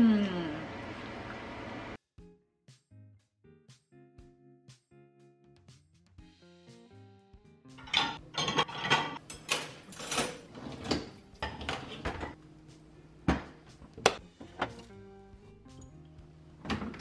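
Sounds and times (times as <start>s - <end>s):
ceramic plates clinking: 7.8s - 12.4s.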